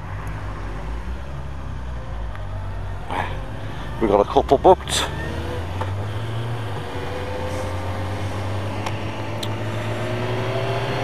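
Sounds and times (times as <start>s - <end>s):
road noise: 0.0s - 11.0s.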